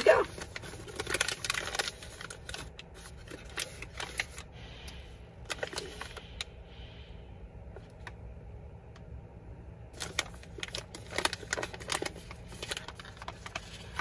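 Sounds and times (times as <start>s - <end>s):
coffee bag crinkling: 0.0s - 4.5s, 5.5s - 6.3s, 10.0s - 14.0s.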